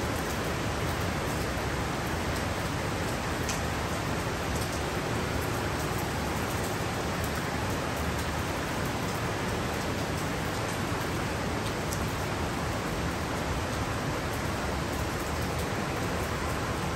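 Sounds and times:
heavy rain hiss: 0:00.0 - 0:16.9
raindrops ticking close by: 0:00.1 - 0:16.9.

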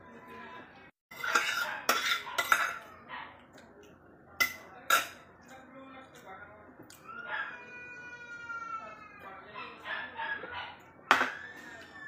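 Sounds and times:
metal spoons clinking on bowls: 0:01.1 - 0:03.7, 0:04.4 - 0:06.3.

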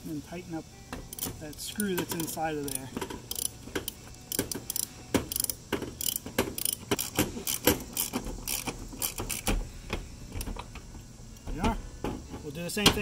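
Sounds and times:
socket ratchet clicking: 0:01.0 - 0:09.6.

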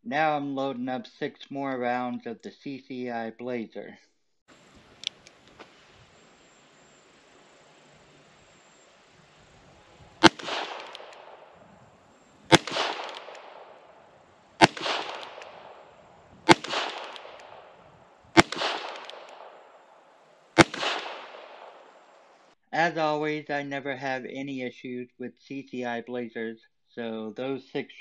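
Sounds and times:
revolver shots echoing: 0:09.8 - 0:22.5.

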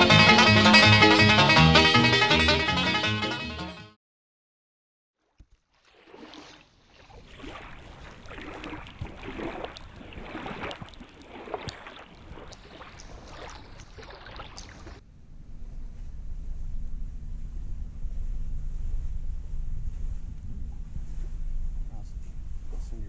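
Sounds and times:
small waves lapping and splashing: 0:05.2 - 0:15.0
low wind rumble on microphone: 0:14.8 - 0:23.0.

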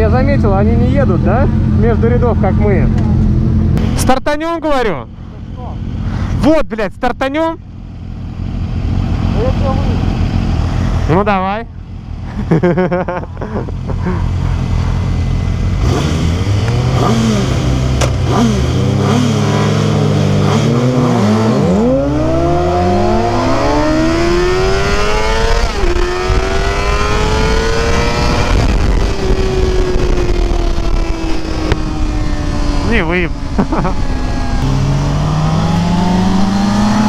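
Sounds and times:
motorcycle accelerating: 0:00.0 - 0:06.4, 0:07.5 - 0:37.0
motorcycle engines revving: 0:00.0 - 0:06.4, 0:07.5 - 0:37.0.

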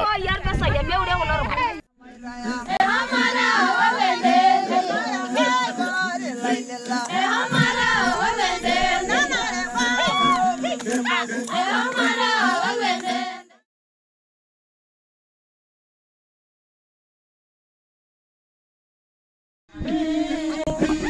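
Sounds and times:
group singing unaccompanied: 0:02.0 - 0:13.6, 0:19.7 - 0:21.0.

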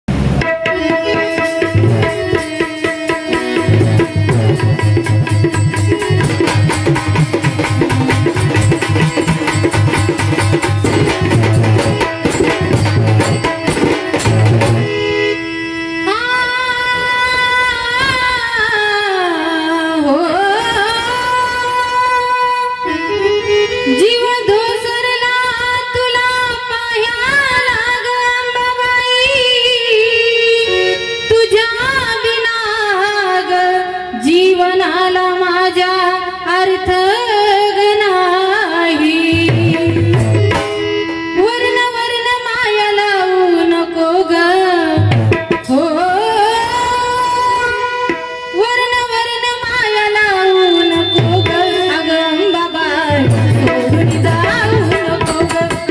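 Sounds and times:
drum beats: 0:00.1 - 0:15.1, 0:39.2 - 0:41.4, 0:45.0 - 0:46.0, 0:50.6 - 0:55.9
musical accompaniment: 0:00.1 - 0:32.5, 0:37.7 - 0:55.9
woman singing into a microphone: 0:00.4 - 0:55.9.

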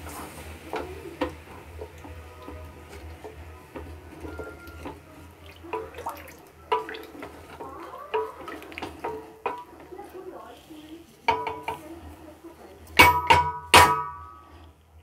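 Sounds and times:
spatula scraping pot: 0:00.0 - 0:13.3
water sloshing in pot: 0:00.0 - 0:14.3
spatula knocking against pot: 0:05.7 - 0:09.9, 0:11.3 - 0:11.9, 0:13.0 - 0:14.4.

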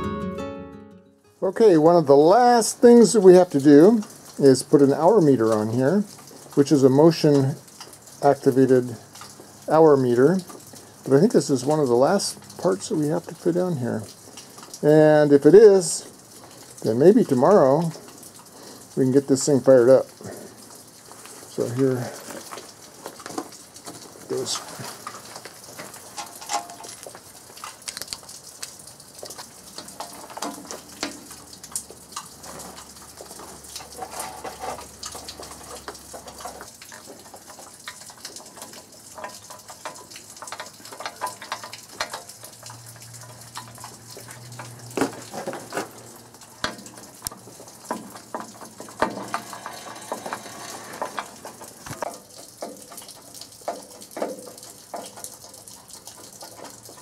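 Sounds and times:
rain hissing: 0:01.4 - 0:57.0
clicks and knocks of tools: 0:22.3 - 0:28.2, 0:33.8 - 0:42.4.

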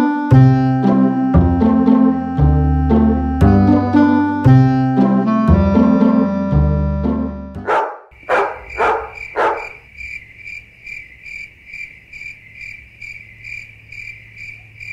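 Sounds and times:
dog barking: 0:07.6 - 0:09.8
crickets chirping: 0:07.7 - 0:14.9.

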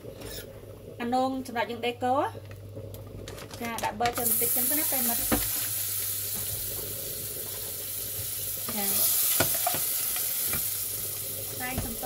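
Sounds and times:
butter sizzling in a saucepan: 0:04.2 - 0:12.0.

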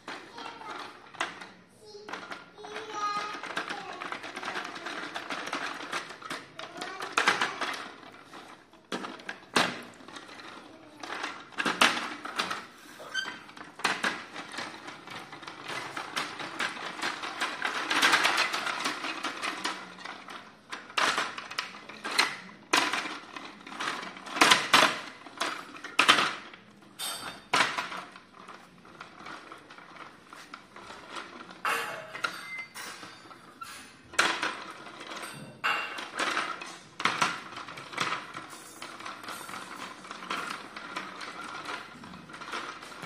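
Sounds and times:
plastic toy clattering on stone: 0:00.1 - 0:43.0.

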